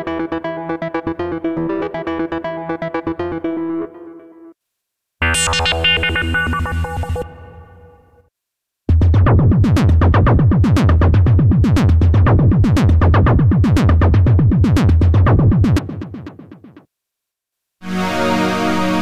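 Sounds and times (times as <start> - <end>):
clicky techno synth sequence: 5.2 - 7.7, 8.9 - 16.8.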